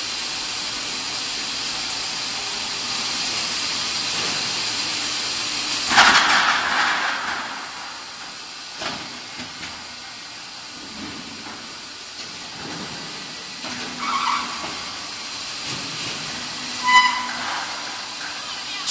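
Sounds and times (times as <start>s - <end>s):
factory machine noise: 0.0s - 18.9s
loud pneumatic hiss: 13.0s - 18.9s
ringing metal squeal: 14.0s - 14.6s, 16.7s - 18.9s.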